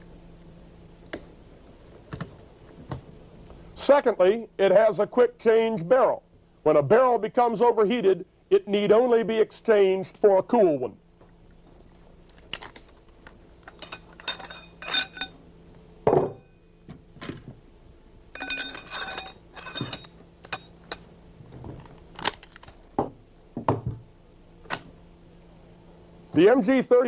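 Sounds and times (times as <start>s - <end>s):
metal clicks and clinks: 13.6s - 15.4s, 18.4s - 21.1s
steel barrel sliding and ringing: 13.7s - 15.4s, 18.4s - 20.8s.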